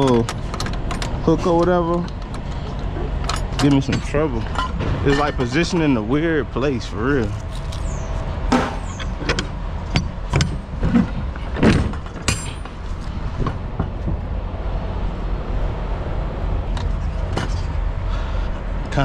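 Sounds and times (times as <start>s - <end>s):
metal door clanks and knocks: 3.2s - 6.0s, 8.5s - 12.8s
idling truck rumble: 15.6s - 19.0s.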